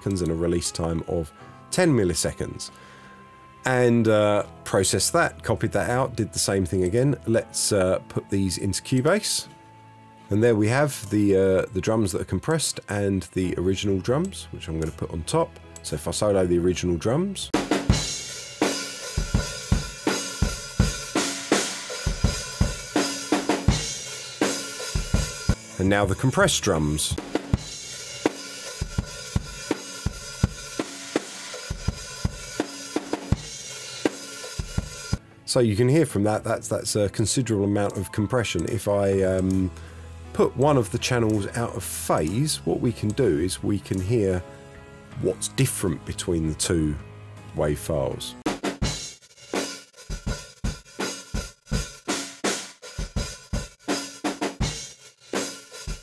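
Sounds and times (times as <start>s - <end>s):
drum kit beat: 17.6s - 35.2s, 48.4s - 56.0s.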